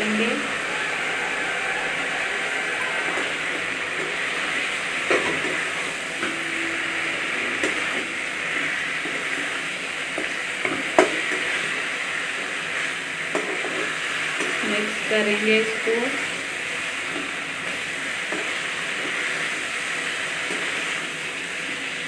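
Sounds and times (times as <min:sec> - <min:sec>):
spices sizzling in a pan: 0:00.0 - 0:22.0.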